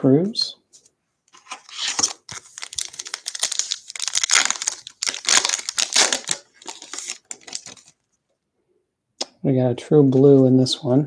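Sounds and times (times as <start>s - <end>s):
foil wrapper crinkling: 1.4s - 8.0s.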